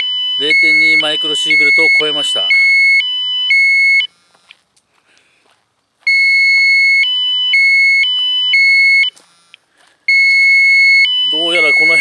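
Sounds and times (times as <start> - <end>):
two-tone electronic alarm beeping: 0.0 - 4.1, 6.1 - 9.2, 10.1 - 12.0.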